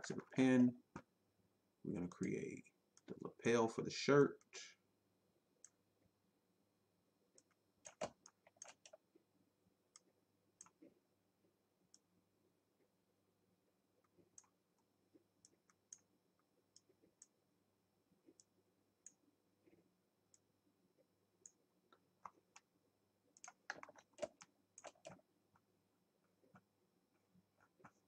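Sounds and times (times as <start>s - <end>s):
computer mouse clicks: 7.4s - 9.0s, 9.9s - 10.9s, 15.4s - 16.1s, 21.4s - 22.7s, 23.3s - 25.2s.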